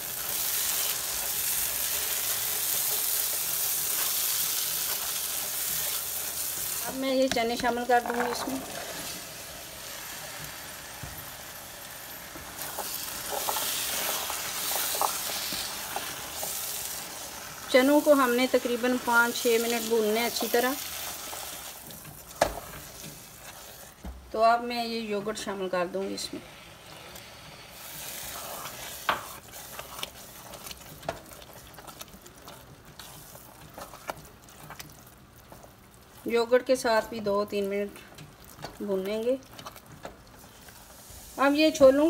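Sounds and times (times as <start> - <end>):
chickpeas sizzling in oil: 0.0 - 42.0
spoon scraping and knocking pan: 6.9 - 9.2.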